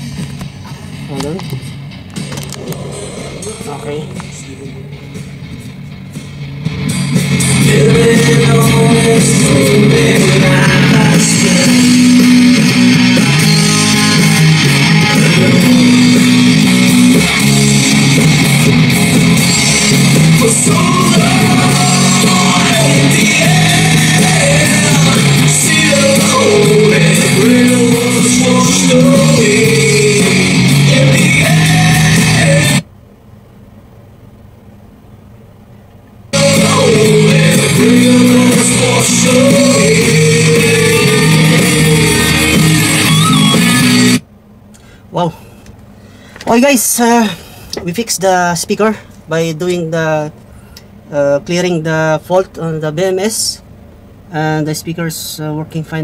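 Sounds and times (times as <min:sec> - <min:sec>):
bass notes: 0:00.0 - 0:32.8, 0:36.3 - 0:44.3
rock music through speaker: 0:00.0 - 0:32.8, 0:36.3 - 0:44.2
person singing: 0:02.4 - 0:05.3, 0:07.5 - 0:16.6, 0:19.4 - 0:32.8, 0:36.4 - 0:44.0.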